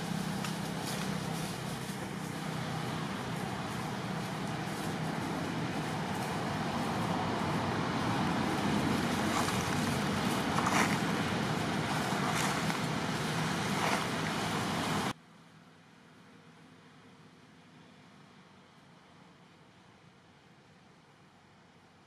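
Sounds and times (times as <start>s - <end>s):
faint rustles: 0.0s - 15.1s
rushing outdoor background noise: 0.0s - 22.0s.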